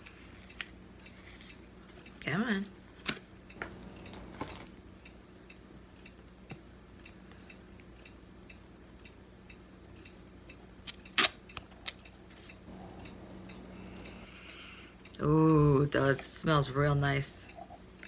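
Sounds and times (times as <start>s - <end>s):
clock ticking: 7.0s - 10.6s, 12.6s - 14.3s.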